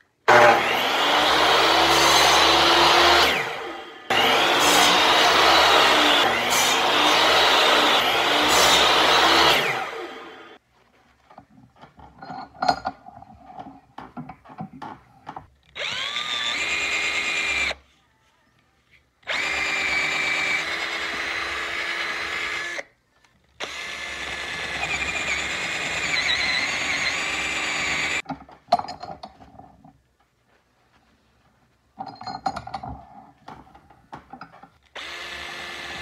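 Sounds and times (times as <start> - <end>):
power drill boring into wood: 0.3 - 10.6, 15.8 - 17.8, 19.3 - 22.8, 23.6 - 28.2, 35.0 - 36.0.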